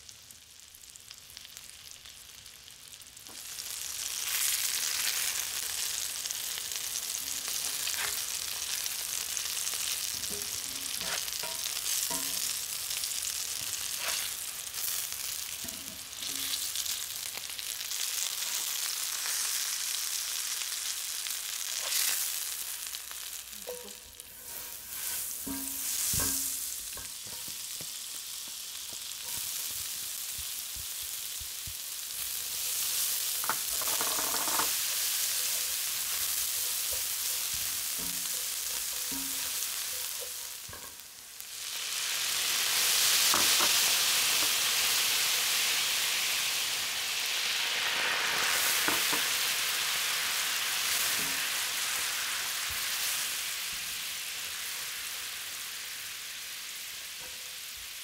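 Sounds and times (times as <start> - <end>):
fish sizzling in a frying pan: 0.0 - 58.0
lemon juice sizzling in hot pan: 0.0 - 58.0
spatula scraping a pan: 7.2 - 13.0, 13.6 - 16.7, 21.7 - 22.9, 23.6 - 27.7, 32.4 - 41.0.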